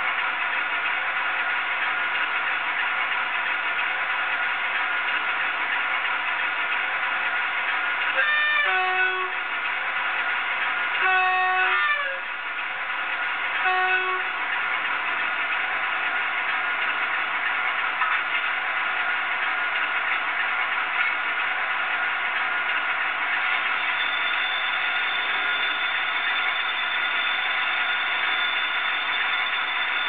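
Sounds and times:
model locomotive horn toots: 8.1 - 9.5, 11.0 - 12.4, 13.6 - 14.6, 23.6 - 30.0.

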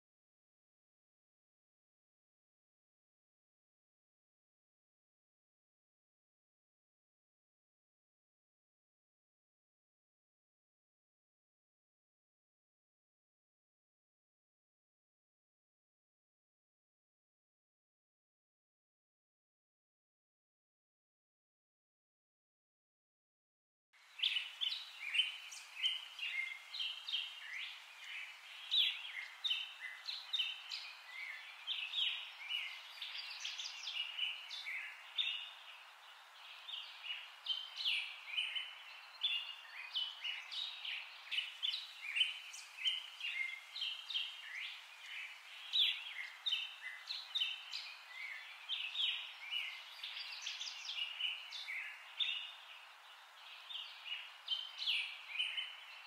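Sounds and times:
faint hiss: 24.0 - 56.0
small birds chirping: 24.0 - 56.0.

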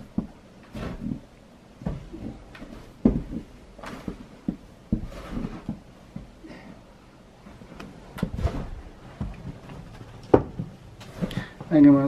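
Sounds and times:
snow shovel scraping and thumping: 0.2 - 5.9, 8.2 - 9.6, 11.0 - 11.6.

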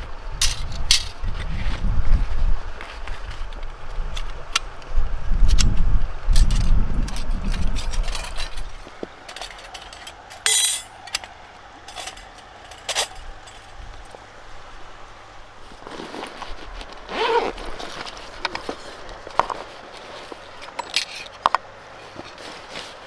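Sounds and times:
metal panels clicking and clinking: 6.4 - 13.8
metallic scrape: 9.3 - 11.1.

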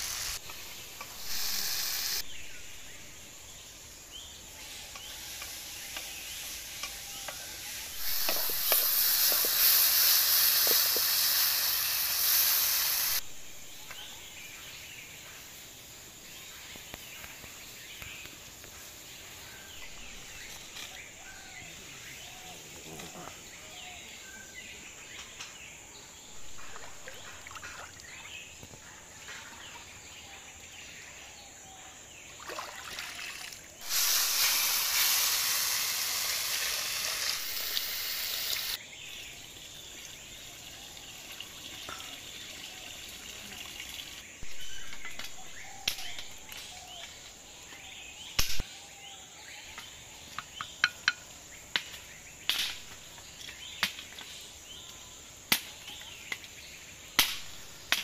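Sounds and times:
water pouring into clay pot: 8.0 - 13.2, 32.4 - 38.8.

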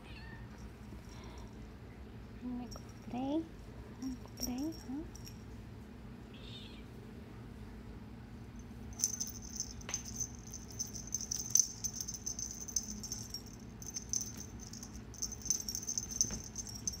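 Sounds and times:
small bells jingling: 4.0 - 5.5, 8.9 - 17.0.

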